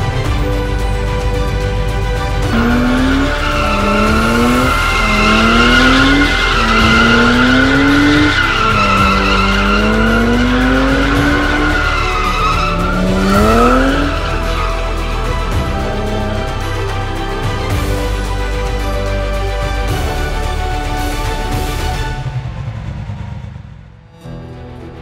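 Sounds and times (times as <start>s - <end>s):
music: 0.0s - 25.0s
car engine revving: 1.6s - 24.1s
tyre squeal: 2.4s - 17.1s.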